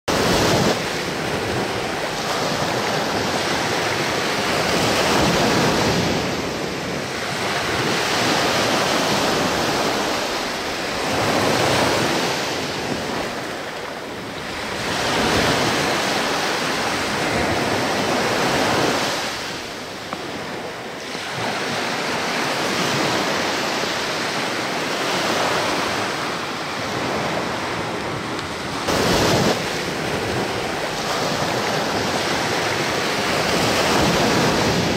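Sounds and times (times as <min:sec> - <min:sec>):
small waves on sandy shore: 0:00.1 - 0:34.9.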